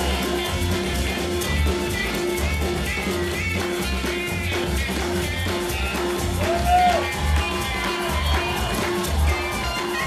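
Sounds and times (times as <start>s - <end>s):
rock and roll music: 0.0s - 10.0s.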